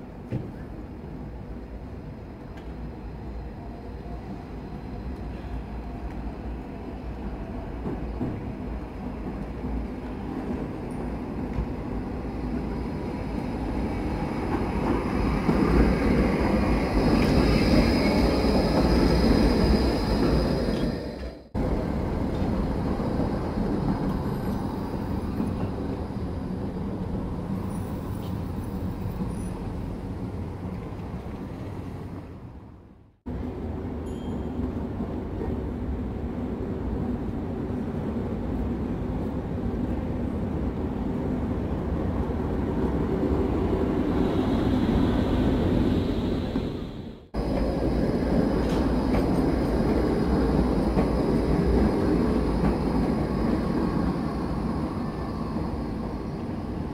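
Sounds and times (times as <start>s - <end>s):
tram wheels rumbling: 0.0s - 56.9s.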